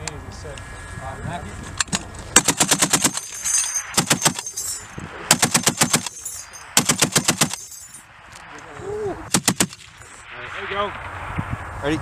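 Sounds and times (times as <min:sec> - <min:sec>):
heavy machine gun bursts: 0:02.4 - 0:03.4, 0:04.0 - 0:04.5, 0:05.3 - 0:06.2, 0:06.8 - 0:07.7.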